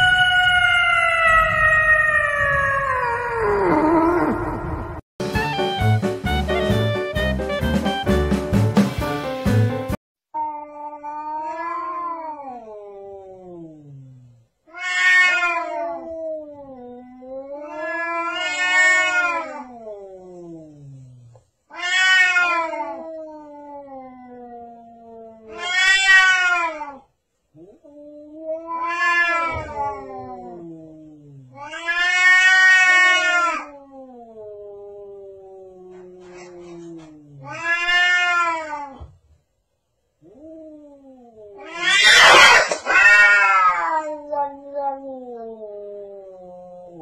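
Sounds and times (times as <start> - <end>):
cat yowling: 0.0 - 3.9, 10.4 - 13.2, 14.7 - 20.0, 21.7 - 27.1, 27.7 - 30.6, 31.5 - 39.0, 40.2 - 47.0.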